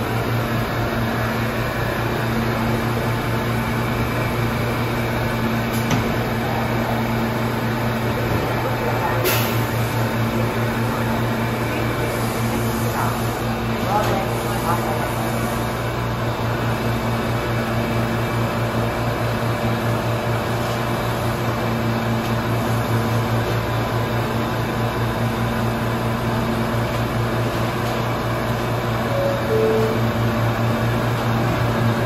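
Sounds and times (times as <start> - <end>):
subway train hum and whir: 0.0 - 32.0
two-note falling chime: 29.1 - 30.3.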